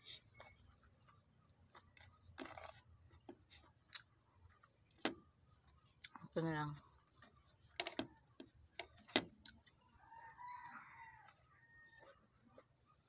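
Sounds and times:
rooster crowing: 10.0 - 12.0.

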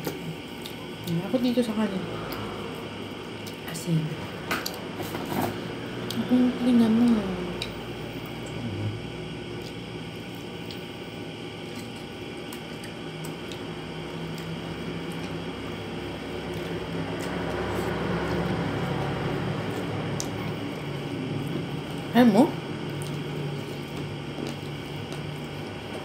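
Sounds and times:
steady low hum: 0.0 - 26.0
wet chewing: 22.8 - 26.0.

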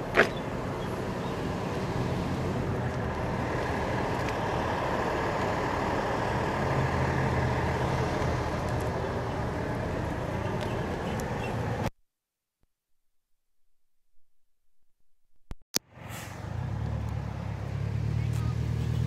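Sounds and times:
truck engines idling: 0.0 - 11.8, 15.9 - 19.0.

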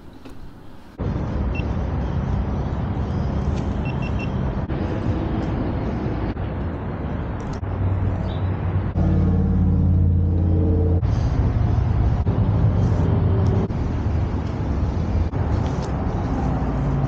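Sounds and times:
road and wind rush: 0.0 - 17.0.

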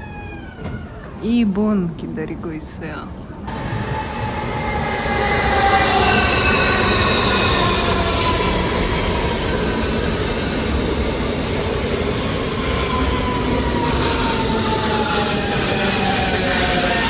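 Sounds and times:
train wheels rumbling: 3.4 - 17.0.

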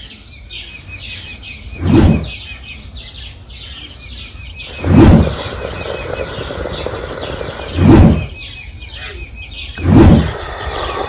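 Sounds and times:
birds singing: 0.0 - 11.0
low rumbles: 1.7 - 2.4, 4.6 - 8.5, 9.6 - 11.0.

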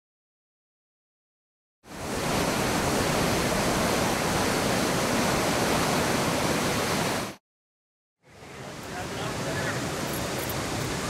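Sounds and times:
roar of rushing water: 1.9 - 7.4, 8.3 - 11.0.

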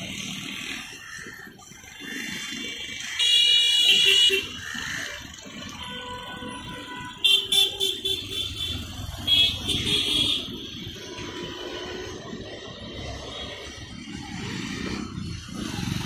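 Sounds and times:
rumble of passing vehicles: 0.0 - 16.0
vehicle horns honking: 3.2 - 4.6, 5.8 - 10.6.

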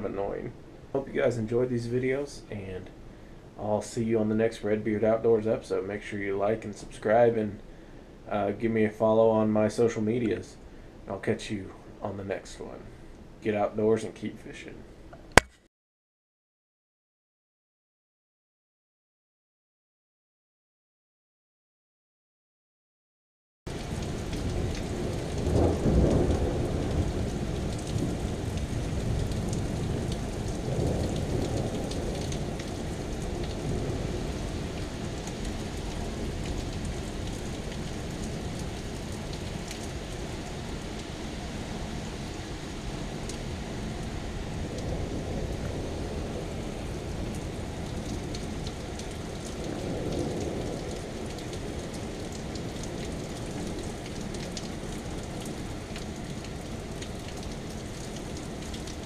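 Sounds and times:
heavy rain: 23.7 - 59.0
thunder rolling: 24.4 - 34.6.

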